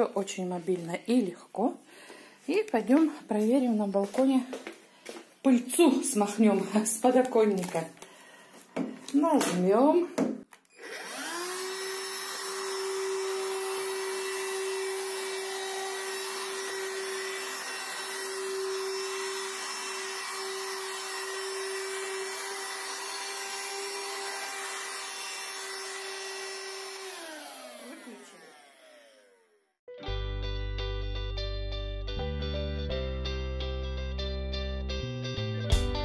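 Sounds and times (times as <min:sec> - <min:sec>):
handheld vacuum cleaner motor: 0:10.5 - 0:29.6.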